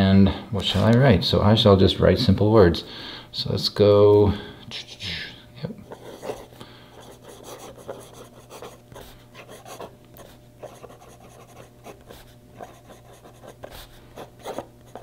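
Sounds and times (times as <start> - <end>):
pen nib scratching on paper: 5.9 - 15.0.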